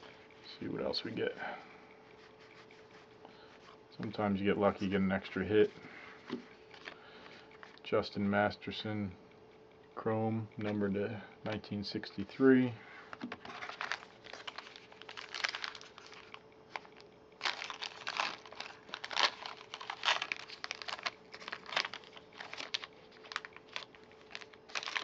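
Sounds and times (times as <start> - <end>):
faint steady hum: 0.0 - 25.0
foil wrapper crinkling: 13.4 - 25.0.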